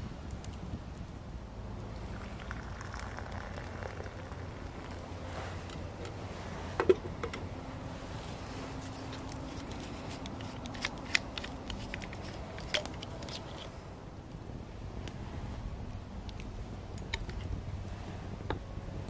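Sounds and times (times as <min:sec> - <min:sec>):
kettle and cups clinking: 0:02.2 - 0:05.0.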